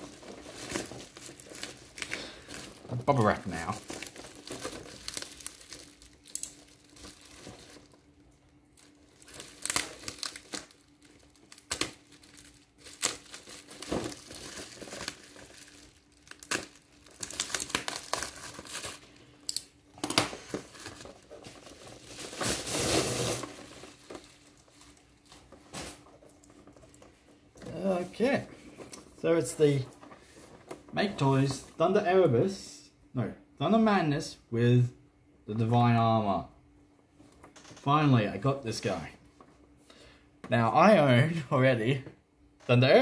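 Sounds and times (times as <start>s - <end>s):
bubble wrap crinkling: 0.0s - 31.8s.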